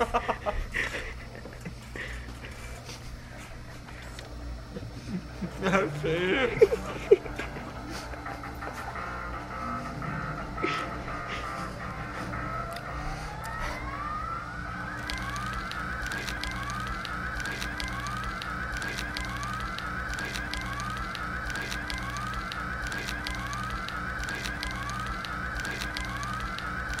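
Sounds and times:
electronic music: 4.3 - 27.0
siren-like whoop: 9.3 - 27.0
crackling clicks: 12.2 - 13.6, 14.9 - 27.0.

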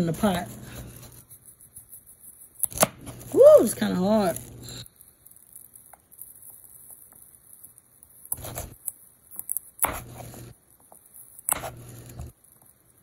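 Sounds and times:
knife chopping carrots on board: 9.8 - 10.2.

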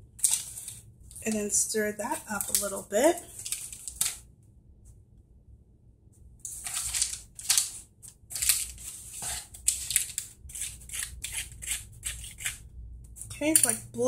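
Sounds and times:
plastic spoon scraping tray: 8.5 - 12.6.

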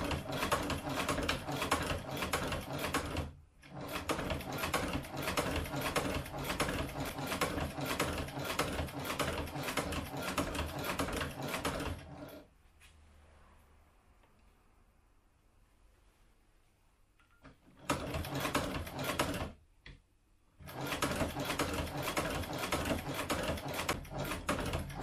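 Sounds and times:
sewing machine clicking: 0.0 - 12.5, 17.2 - 20.0, 20.6 - 25.0.

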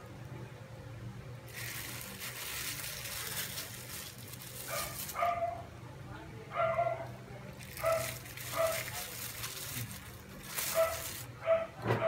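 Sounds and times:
crinkling plastic: 1.5 - 5.5, 7.5 - 11.4.

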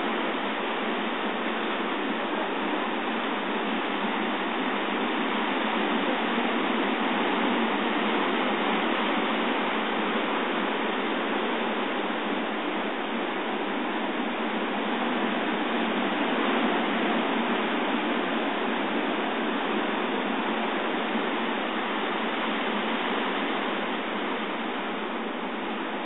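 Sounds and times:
surf washing over rocks: 0.0 - 26.0.

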